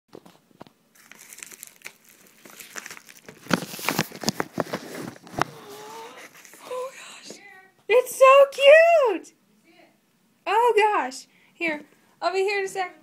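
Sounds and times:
padded envelope crinkling: 0:00.2 - 0:06.6.

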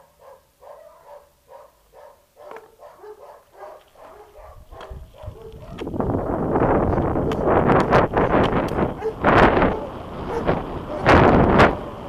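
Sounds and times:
dog barking: 0:00.0 - 0:05.9, 0:08.9 - 0:11.2
wind noise on microphone: 0:04.0 - 0:12.0.

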